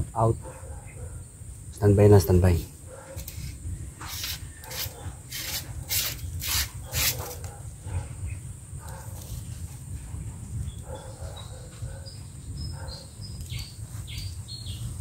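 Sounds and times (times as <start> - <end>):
rustling of plants: 2.5 - 7.6.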